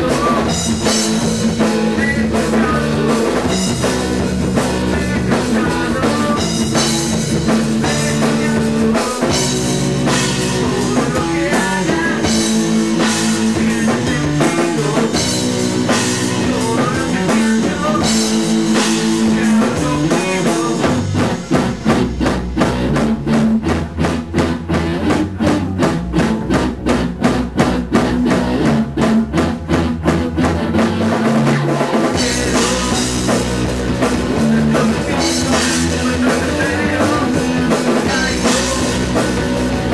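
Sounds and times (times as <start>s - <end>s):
rock band playing live: 0.0s - 39.9s.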